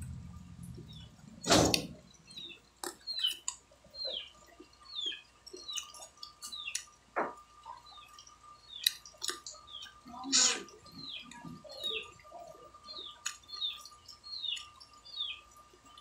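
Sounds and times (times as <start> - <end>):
mouth clicks and smacks chewing: 2.8 - 7.0, 7.6 - 11.9, 12.9 - 15.0.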